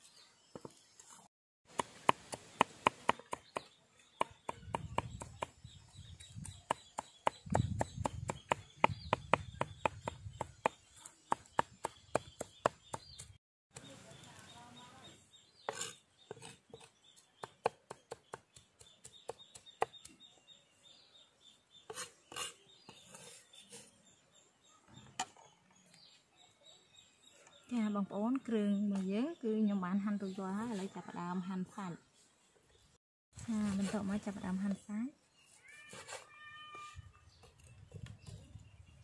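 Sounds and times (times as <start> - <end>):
cleaver chopping on wooden block: 1.7 - 5.6, 6.4 - 13.3, 17.4 - 20.1.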